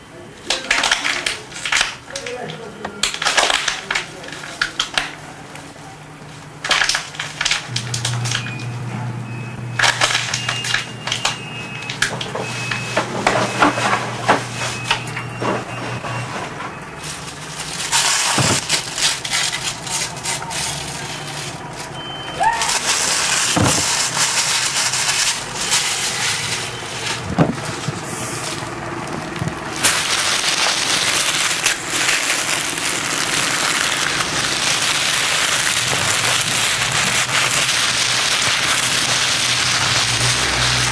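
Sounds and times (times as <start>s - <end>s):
paper and packaging crinkling: 0.4s - 8.8s, 9.8s - 40.9s
steady low hum: 7.6s - 22.4s.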